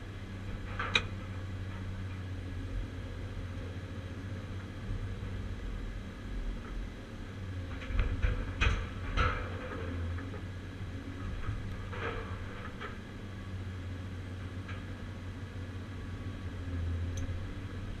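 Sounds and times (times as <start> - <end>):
excavator diesel engine running: 0.0 - 18.0
scrap shear knocks and clanks: 0.4 - 2.2, 7.7 - 10.4, 11.2 - 13.0.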